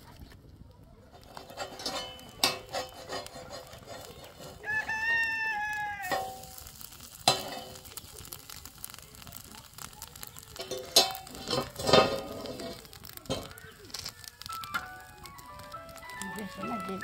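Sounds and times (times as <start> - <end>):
metal spatula scraping griddle: 1.2 - 5.0, 6.0 - 7.9, 10.6 - 15.2
rooster crowing: 4.6 - 6.2.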